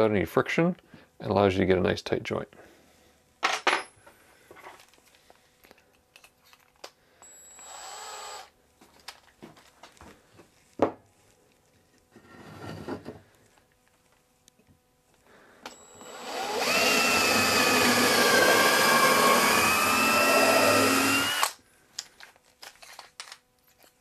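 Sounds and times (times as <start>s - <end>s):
cordless drill whirring: 7.2s - 8.5s, 15.7s - 21.6s
wood sliding across bench: 12.2s - 13.2s.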